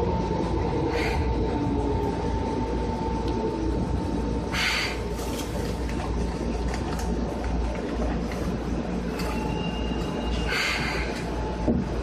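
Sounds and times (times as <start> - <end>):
electric train rumble: 0.0 - 12.0.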